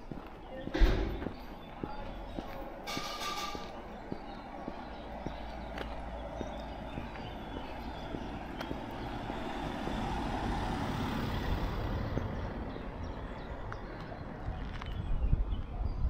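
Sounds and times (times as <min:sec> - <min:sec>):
car driving past: 0:05.4 - 0:14.1.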